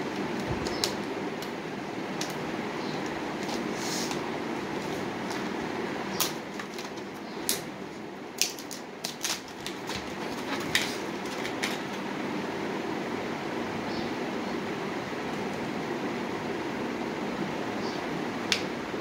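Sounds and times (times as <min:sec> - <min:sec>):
plastic packaging crackling: 0:00.0 - 0:12.1
steady background hum: 0:00.0 - 0:19.0.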